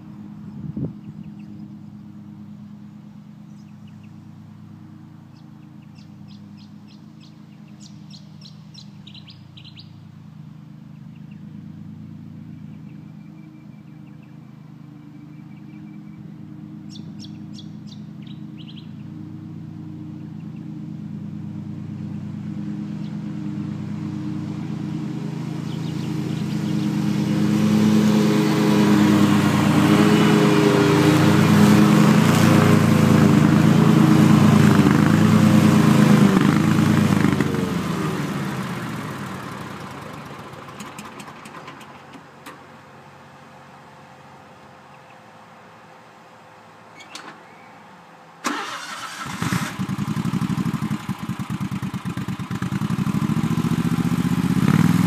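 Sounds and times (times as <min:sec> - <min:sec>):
small birds chirping: 0:00.0 - 0:04.4, 0:05.3 - 0:10.1, 0:10.9 - 0:11.7, 0:12.4 - 0:19.2, 0:20.1 - 0:20.8, 0:25.4 - 0:27.6, 0:44.4 - 0:45.4, 0:46.9 - 0:48.2
lawn mower engine running: 0:00.0 - 0:55.0.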